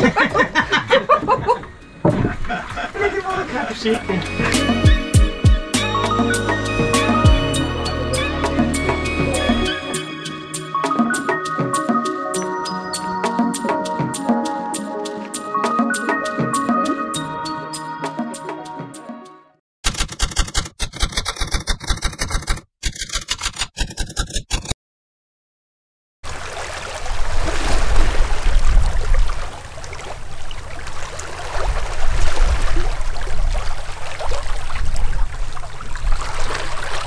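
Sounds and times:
water rushing in boat wake: 0:26.3 - 0:37.0.

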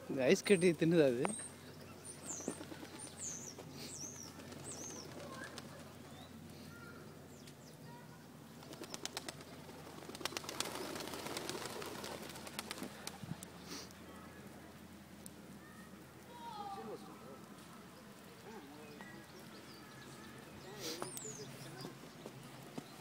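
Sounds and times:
pigeons chirping: 0:00.0 - 0:07.0, 0:07.6 - 0:14.6, 0:16.9 - 0:23.0
rustling with quick ticks: 0:08.6 - 0:14.0.

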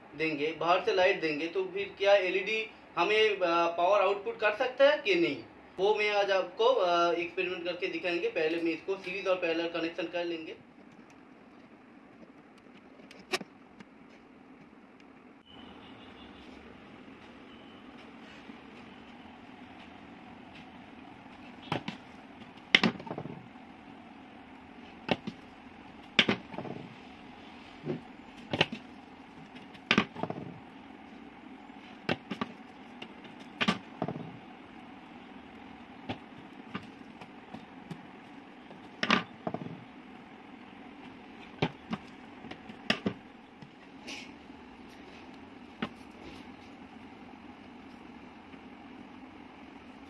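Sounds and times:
steady low hum: 0:00.0 - 0:50.0
sharp clicks and knocks: 0:21.7 - 0:23.4, 0:26.0 - 0:26.9, 0:27.8 - 0:30.6, 0:32.0 - 0:34.4, 0:41.0 - 0:43.8.

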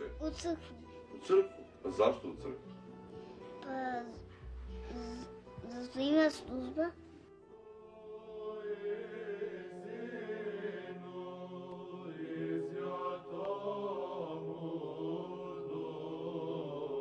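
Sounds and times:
voices chanting slow melody: 0:07.4 - 0:17.0.

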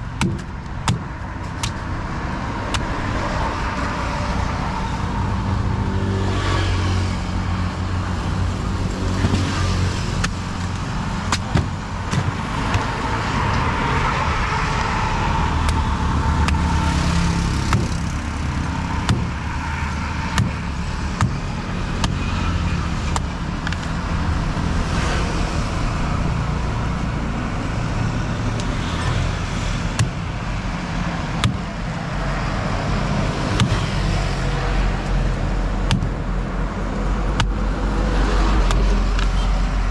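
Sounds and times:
road traffic: 0:00.0 - 0:39.9
knife chopping fruit: 0:17.6 - 0:18.2, 0:19.0 - 0:19.5, 0:31.4 - 0:31.7.

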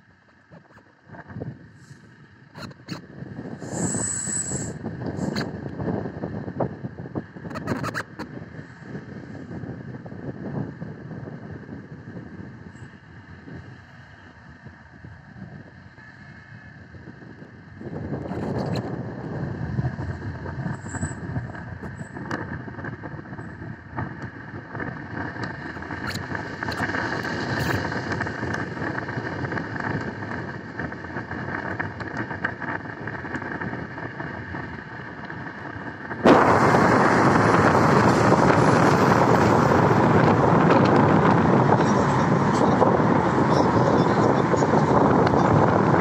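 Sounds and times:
wind rushing: 0:03.3 - 0:06.8, 0:36.2 - 0:46.0
tyres hissing on wet road: 0:03.6 - 0:05.3, 0:36.3 - 0:40.2
car road noise from inside: 0:17.8 - 0:46.0.

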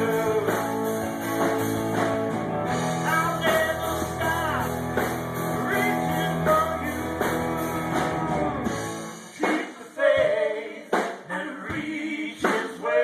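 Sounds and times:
man singing lead vocals: 0:00.0 - 0:01.2, 0:02.9 - 0:08.3, 0:09.4 - 0:13.0
live rock band: 0:00.0 - 0:13.0.

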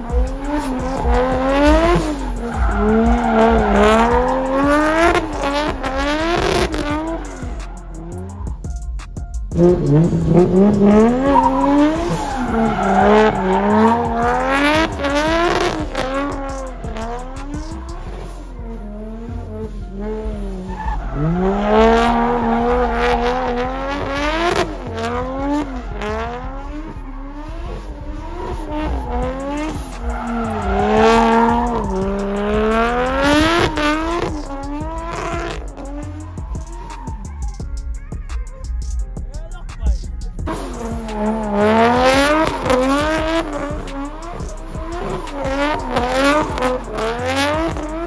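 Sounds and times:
tyres squealing: 0:00.0 - 0:08.8, 0:09.6 - 0:18.2, 0:28.1 - 0:38.1, 0:38.7 - 0:48.0
car engine revving: 0:00.0 - 0:48.0.

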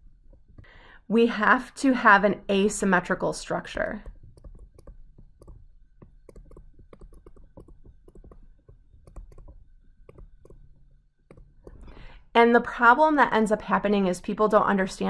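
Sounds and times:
stylus tapping on surface: 0:04.0 - 0:11.9.

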